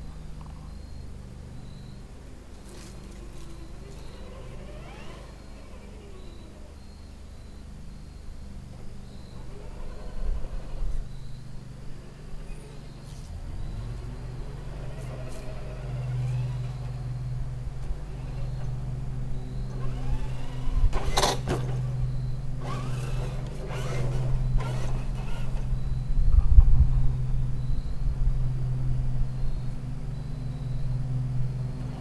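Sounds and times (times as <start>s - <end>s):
steady low hum: 0.0s - 32.0s
toy car motor whining: 2.6s - 6.9s, 9.3s - 11.1s, 14.7s - 17.0s, 19.7s - 22.0s, 22.6s - 25.7s.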